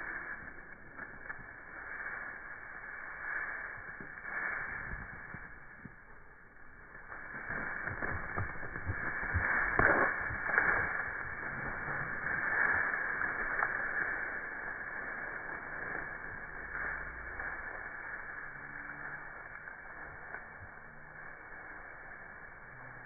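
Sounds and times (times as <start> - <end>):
sharp cracks: 3.4 - 18.3
dry brush rustling and snapping: 6.8 - 14.3.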